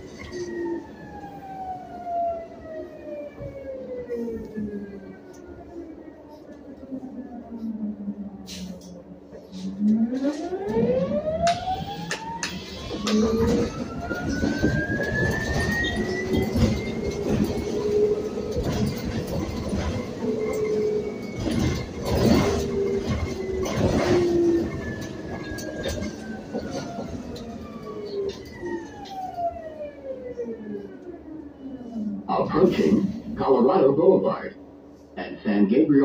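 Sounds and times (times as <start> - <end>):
road rumble and rattles: 7.5 - 34.4.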